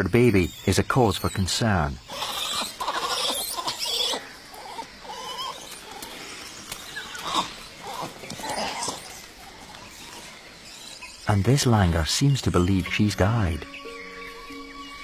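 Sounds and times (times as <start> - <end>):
monkeys calling: 0.0 - 15.0.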